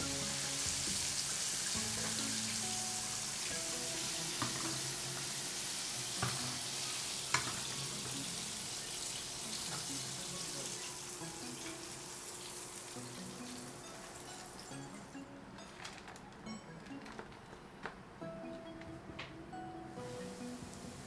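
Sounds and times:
chicken sizzling in oil: 0:00.0 - 0:14.7.

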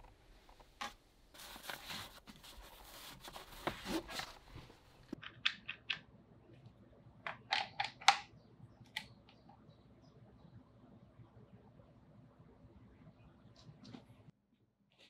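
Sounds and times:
cloth pouch rustling and scraping: 0:01.3 - 0:05.2.

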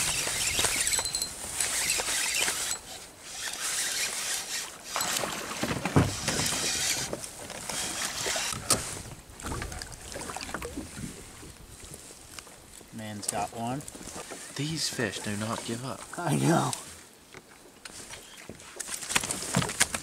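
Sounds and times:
spinning reel cranking: 0:00.0 - 0:05.2
water splashing against hull: 0:04.9 - 0:12.0.

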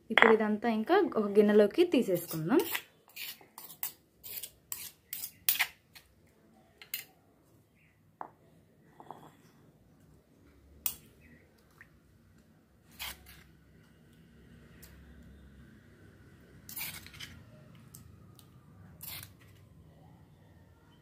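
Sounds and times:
spoon scraping a stone mortar: 0:02.0 - 0:06.1, 0:12.9 - 0:13.5, 0:16.6 - 0:17.4, 0:19.0 - 0:19.6.

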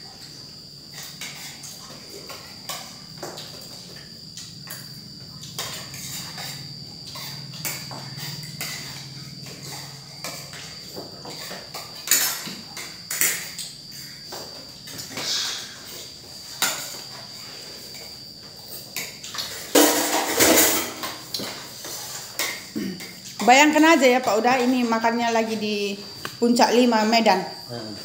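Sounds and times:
cricket trill: 0:00.0 - 0:28.0
cutlery clinking on plates: 0:11.2 - 0:13.7, 0:19.0 - 0:23.5.

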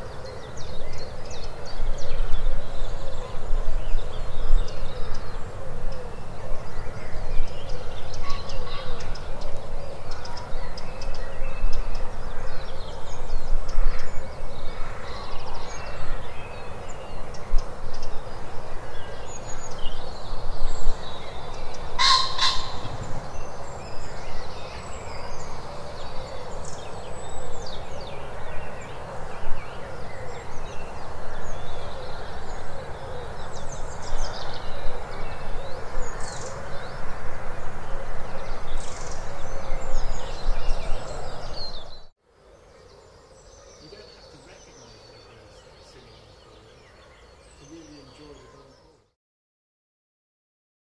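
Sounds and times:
birds singing and calling: 0:00.0 - 0:49.2
bird harsh double call: 0:22.0 - 0:23.0.

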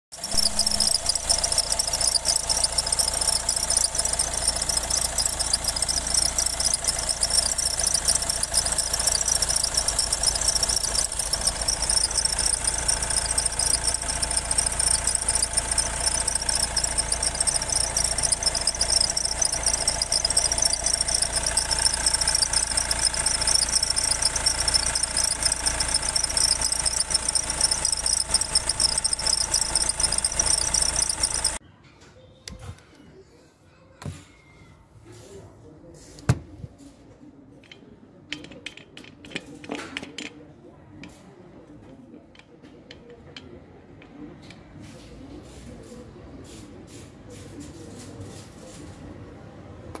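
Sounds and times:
high-pitched pulley squeal: 0:00.1 - 0:31.6.

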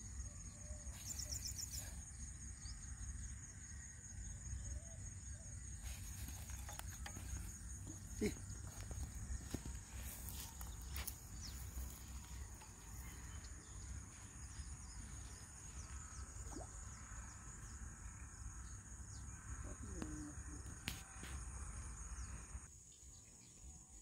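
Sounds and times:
bird chirps: 0:00.6 - 0:02.8, 0:04.7 - 0:17.0.

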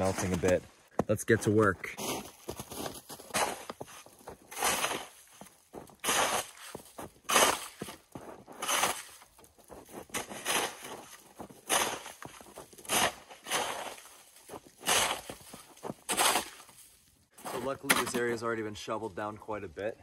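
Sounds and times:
plastic shovel scraping snow: 0:02.0 - 0:09.3, 0:09.9 - 0:18.2.

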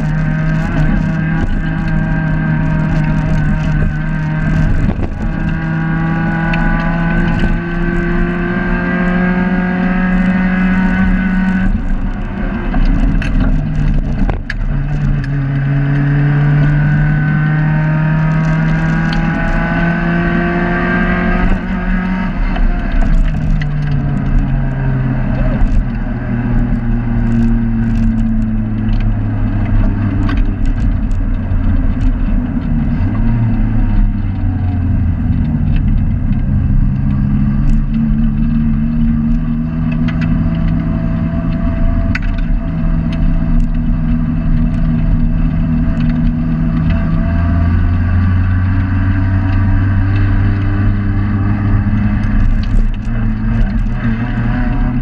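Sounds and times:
car engine from inside cabin: 0:00.0 - 0:55.0
clicks and rattles: 0:10.9 - 0:16.1, 0:22.4 - 0:26.0, 0:26.7 - 0:47.6, 0:51.6 - 0:55.0.

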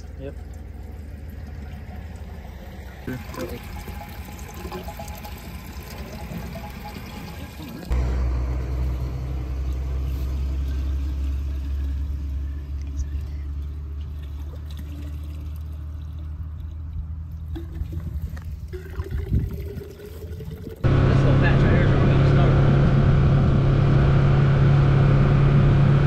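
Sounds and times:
vehicle engine idling: 0:00.0 - 0:18.7, 0:20.8 - 0:26.0
gasoline pouring into metal can: 0:00.3 - 0:07.9, 0:14.0 - 0:20.8.

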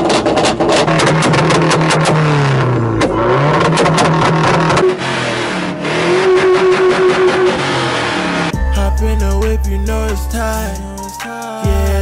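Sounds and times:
car engine revving hard: 0:00.0 - 0:08.6
exhaust crackling: 0:00.0 - 0:11.0.

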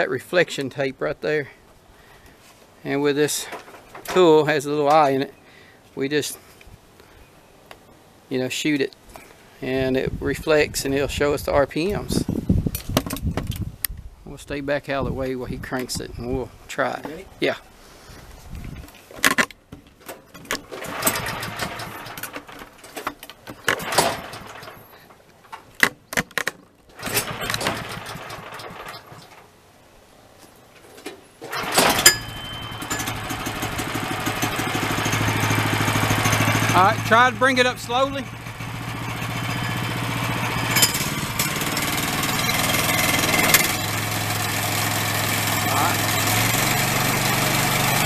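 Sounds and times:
small engine bursts: 0:20.7 - 0:22.6, 0:23.6 - 0:25.1, 0:26.9 - 0:29.3, 0:31.5 - 0:48.0.

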